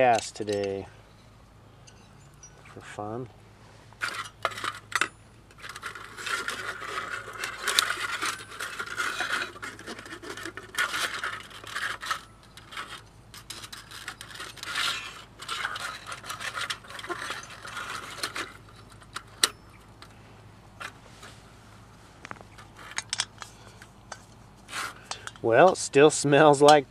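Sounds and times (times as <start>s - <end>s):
metal clinks and rattles: 4.0s - 20.2s, 22.5s - 25.9s.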